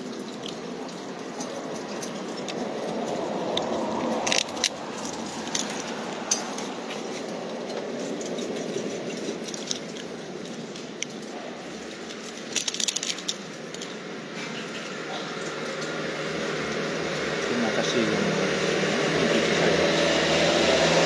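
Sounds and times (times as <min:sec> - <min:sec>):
small clicks and crinkles: 0:00.0 - 0:16.0
car passing: 0:00.0 - 0:21.0
street traffic noise: 0:00.0 - 0:21.0.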